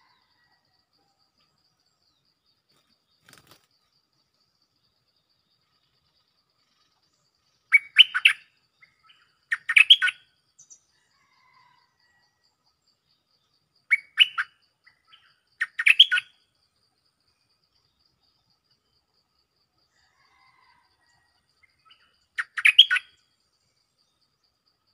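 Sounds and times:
bulbul singing: 7.7 - 10.8, 13.9 - 16.4, 21.9 - 23.2.

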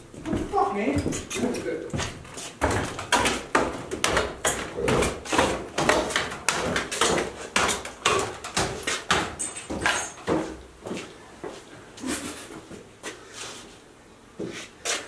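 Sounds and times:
footsteps on gritty concrete: 0.1 - 11.7.

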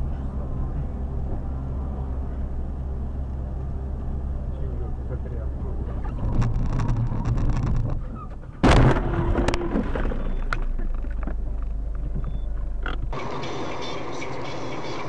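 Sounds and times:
car road and engine noise: 0.0 - 15.0
car crash impact: 8.6 - 10.5.

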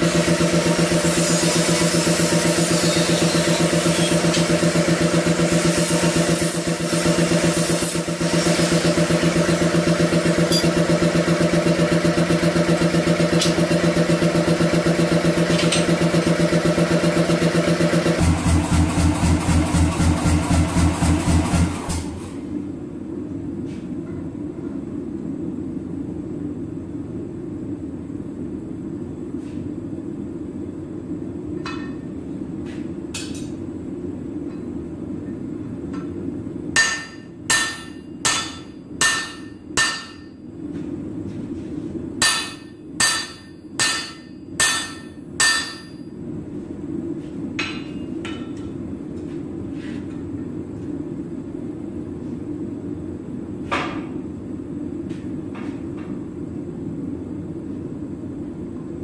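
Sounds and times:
low machine hum: 0.0 - 59.0
hammer striking hot steel: 0.1 - 11.6, 31.6 - 32.0, 36.8 - 40.4, 42.2 - 46.1, 47.6 - 48.7.

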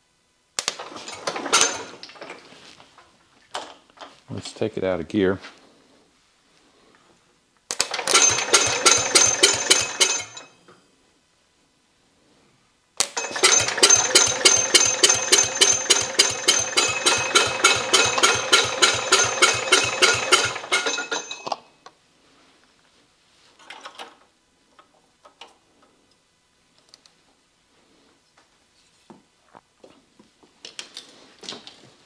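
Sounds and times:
engine starter cranking: 0.8 - 2.1, 7.7 - 10.5, 13.0 - 21.5.

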